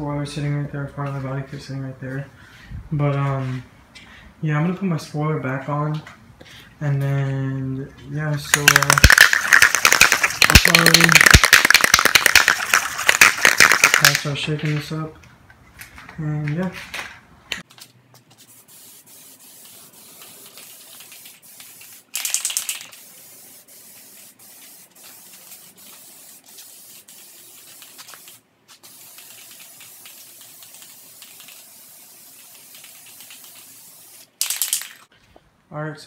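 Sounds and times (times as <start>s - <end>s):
aerosol can spraying: 8.7s - 14.2s, 18.4s - 34.9s.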